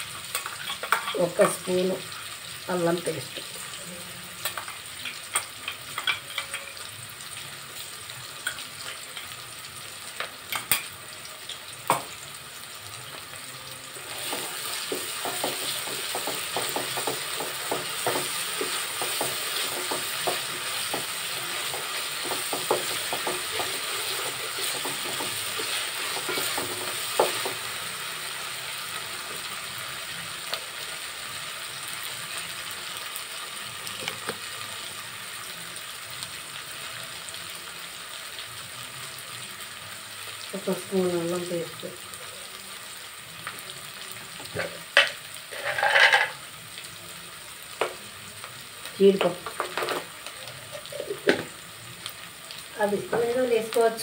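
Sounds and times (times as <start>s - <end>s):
food sizzling in oil: 0.0s - 54.0s
wooden spatula scraping pot: 45.5s - 46.3s.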